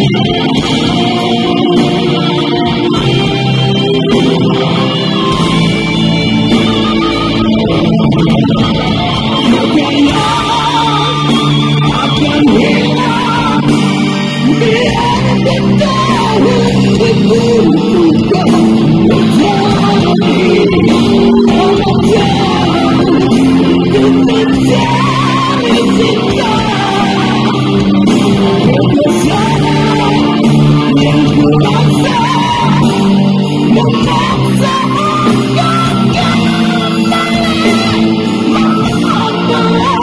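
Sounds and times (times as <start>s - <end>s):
distorted electric guitars: 0.0s - 40.0s
live rock band playing: 0.0s - 40.0s.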